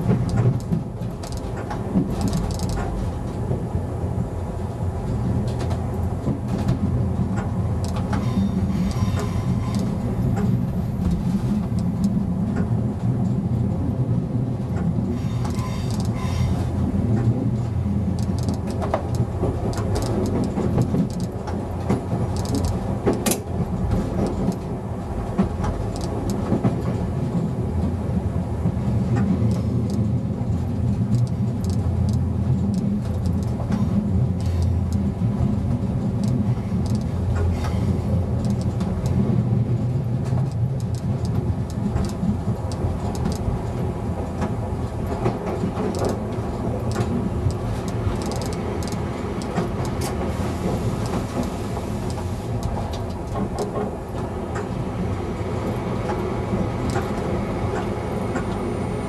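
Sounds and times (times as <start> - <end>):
wheels clicking over rails: 0.0 - 3.6, 14.8 - 28.0, 28.6 - 58.7
diesel train engine drone: 0.0 - 59.0.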